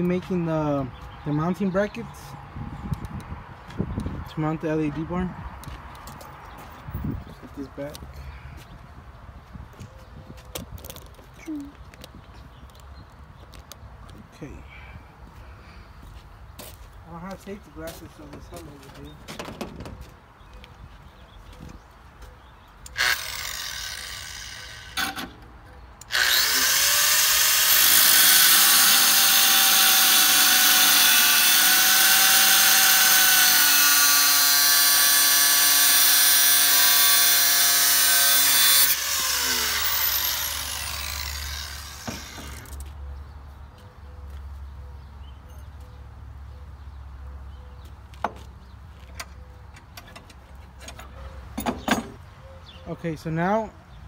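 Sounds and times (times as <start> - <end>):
angle grinder cutting metal: 22.9 - 25.3, 26.0 - 42.8.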